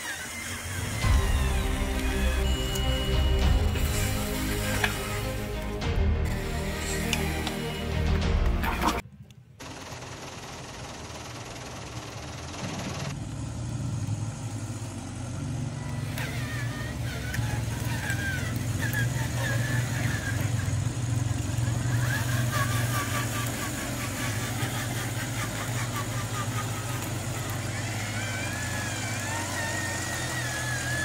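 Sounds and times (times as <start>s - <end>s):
model truck engine drone: 0.0s - 31.0s
music: 1.0s - 9.0s.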